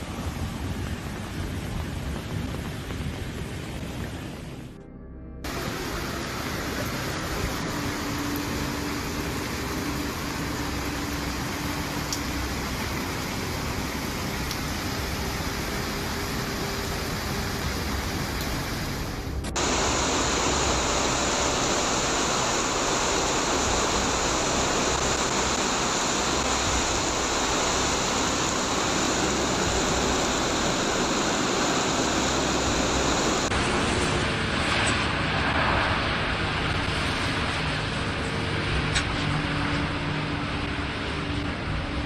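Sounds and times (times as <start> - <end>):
surf washing over rocks: 5.5 - 38.0
heavy rain on cars: 5.5 - 41.6.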